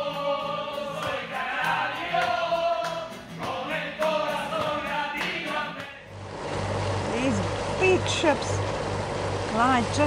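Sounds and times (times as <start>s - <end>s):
men singing together: 0.0s - 6.1s
strummed acoustic guitar: 0.0s - 8.6s.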